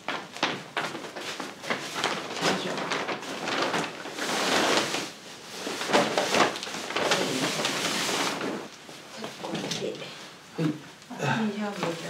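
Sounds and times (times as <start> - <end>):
paper bag rustling: 0.0 - 9.9
rug fabric brushing paper: 0.8 - 9.3.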